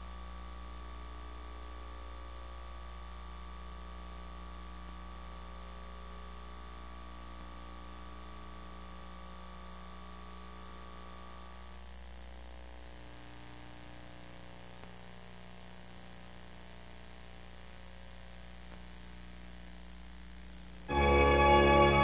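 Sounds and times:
tape playback hiss: 0.0s - 22.0s
faint high steady tone: 20.9s - 22.0s.

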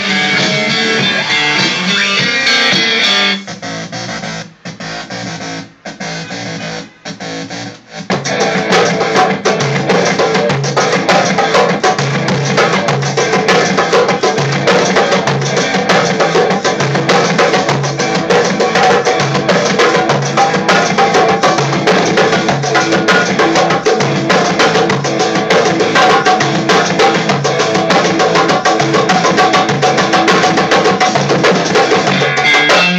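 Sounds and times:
goblet drum played by hand: 8.0s - 32.9s.

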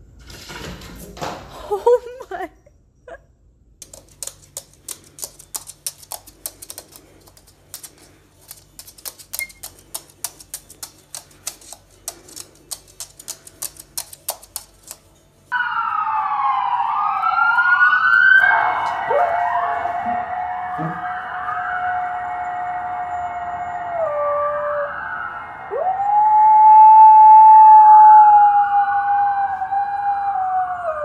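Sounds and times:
rapid irregular clicking: 3.8s - 15.3s.

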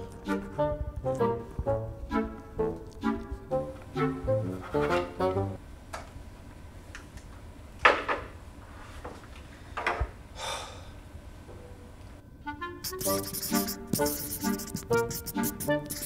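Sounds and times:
music: 0.0s - 5.6s, 12.3s - 16.0s.

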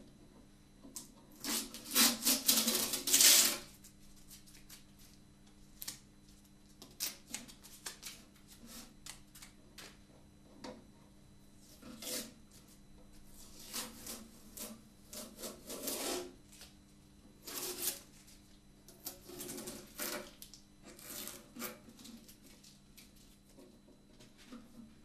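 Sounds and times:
faint steady hum: 0.0s - 25.0s
masking tape tearing off: 1.4s - 3.6s.

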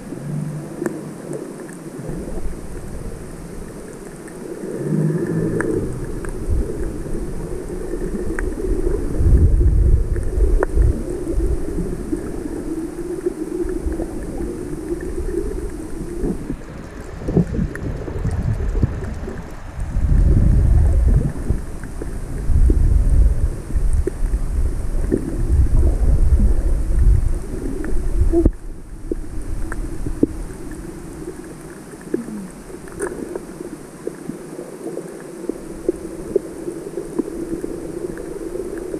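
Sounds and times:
water rumbling and sloshing underwater: 0.0s - 38.9s
faint clicks: 0.4s - 2.9s, 3.6s - 7.0s, 10.1s - 19.9s, 27.8s - 38.9s.

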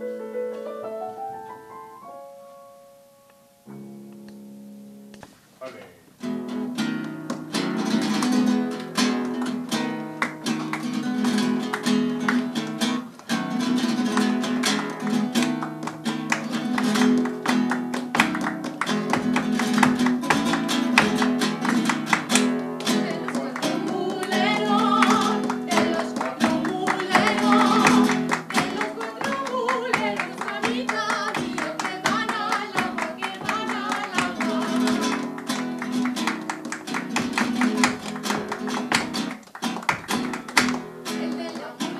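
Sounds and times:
nylon-string guitar flamenco piece: 3.3s - 41.9s
people clapping in rhythm: 6.9s - 41.9s
person singing: 22.8s - 35.3s, 41.0s - 41.9s.

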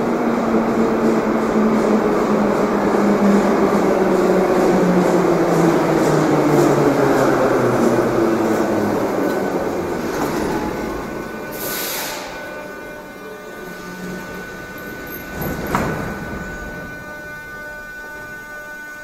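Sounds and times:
train wheels rumbling: 0.0s - 19.0s
train motor whine: 0.6s - 19.0s.

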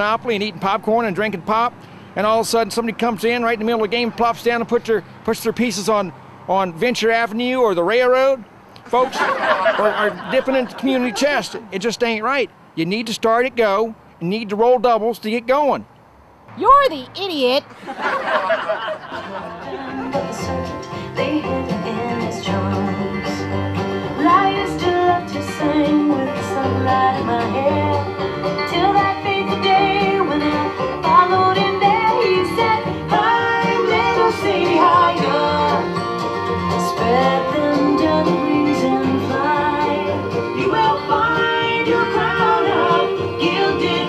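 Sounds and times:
upbeat banjo and guitar music: 19.1s - 44.0s.

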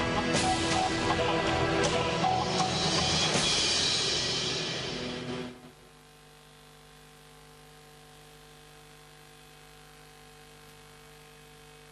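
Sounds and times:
music: 0.0s - 5.7s
faint electrical hum: 5.6s - 11.9s.

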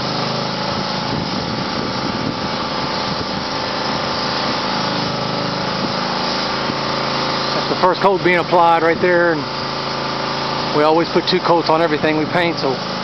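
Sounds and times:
small petrol engine running: 0.0s - 13.0s.

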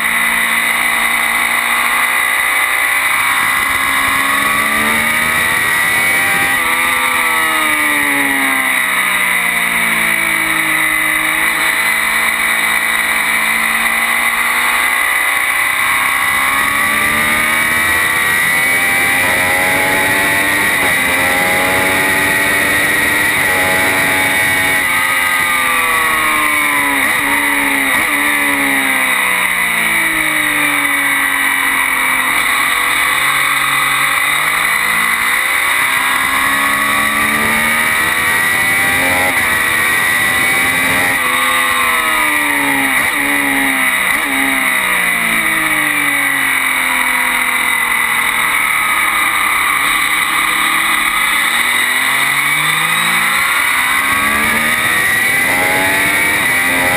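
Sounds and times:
sports motorcycle engine revving: 0.0s - 56.9s.

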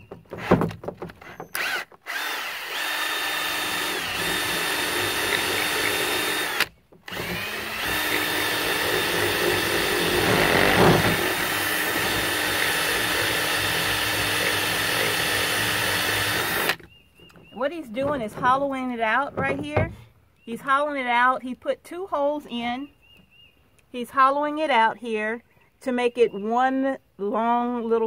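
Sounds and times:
cordless drill whining: 0.0s - 16.9s
drill bit grinding plastic: 0.0s - 18.2s.

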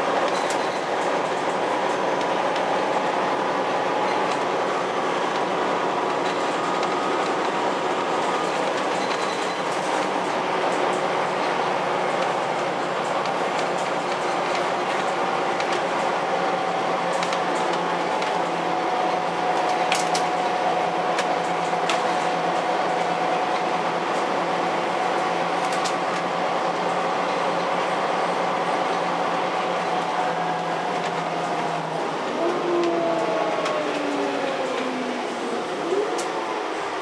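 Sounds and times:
bus engine and road noise: 0.0s - 37.0s
constant whine: 28.2s - 37.0s.

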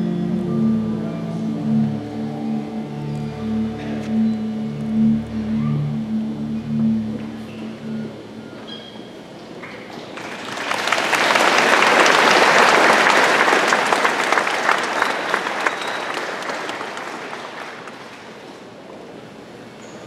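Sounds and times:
crowd applauding: 10.1s - 18.4s.

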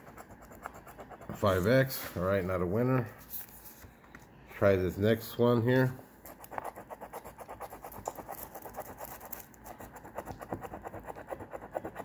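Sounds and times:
coin scratching lottery ticket: 6.3s - 12.0s.

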